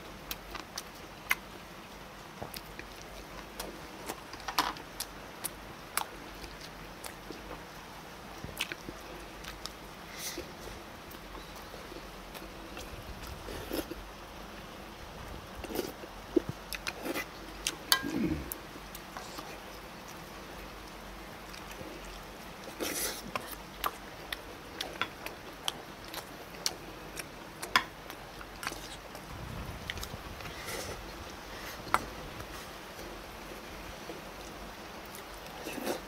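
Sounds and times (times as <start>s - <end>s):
person chewing and slurping food: 24.7s - 33.1s.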